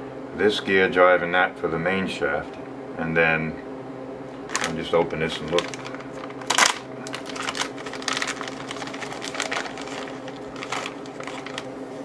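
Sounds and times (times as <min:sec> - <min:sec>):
plastic bag crinkling: 0:04.5 - 0:12.0.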